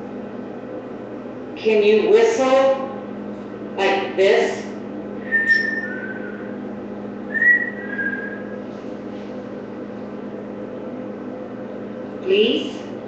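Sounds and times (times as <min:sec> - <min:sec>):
steady low hum: 0:00.0 - 0:13.0
person whistling two-note call: 0:05.2 - 0:06.5, 0:07.3 - 0:08.6.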